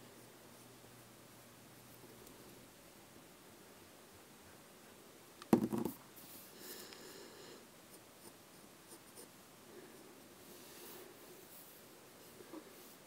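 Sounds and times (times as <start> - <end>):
object clattering on desk: 5.5 - 6.0.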